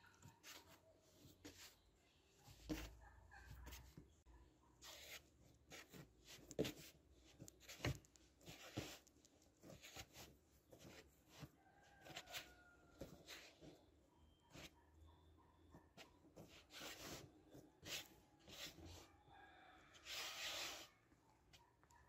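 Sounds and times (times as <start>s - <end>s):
hands kneading dough: 0.0s - 14.9s.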